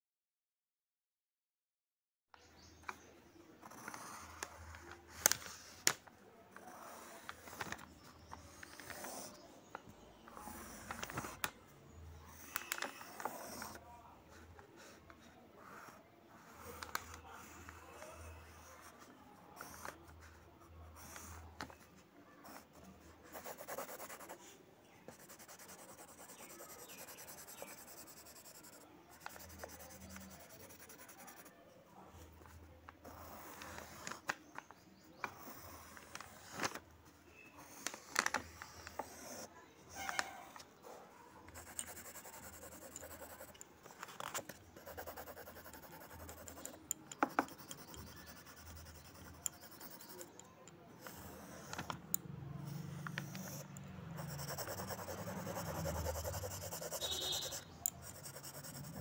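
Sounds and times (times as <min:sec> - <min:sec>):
pencil scratching on paper: 0:03.6 - 0:05.8, 0:06.6 - 0:09.6, 0:10.3 - 0:11.4, 0:12.2 - 0:31.6, 0:32.2 - 0:34.2, 0:35.2 - 0:36.8, 0:37.5 - 0:40.4, 0:41.5 - 0:50.4, 0:51.0 - 0:52.0, 0:52.6 - 0:59.0.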